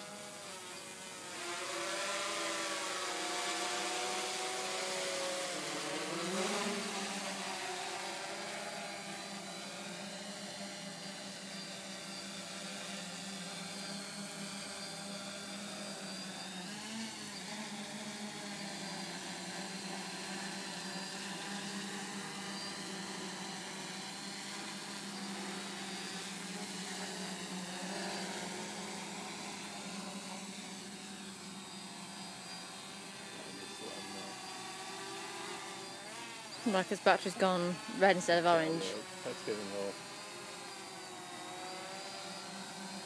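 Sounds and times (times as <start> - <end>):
drone propellers whirring: 0.0 - 43.0.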